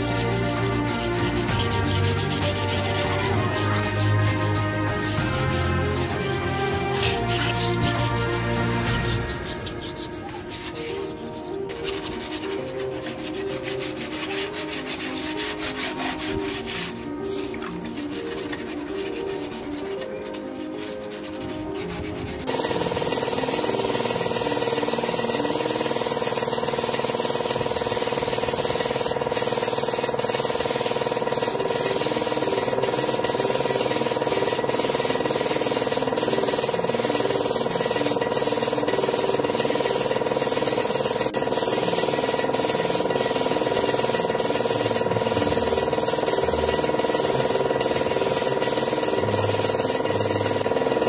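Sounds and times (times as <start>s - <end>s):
paint spray gun hissing: 0.0s - 51.0s.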